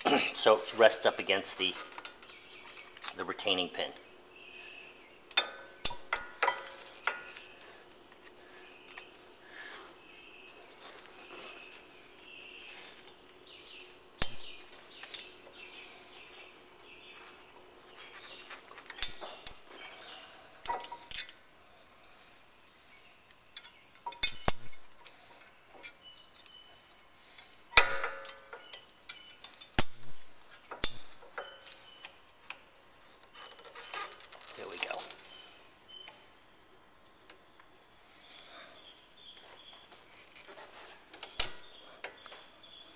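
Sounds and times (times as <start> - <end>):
metallic clicks and clinks: 22.6 - 29.9.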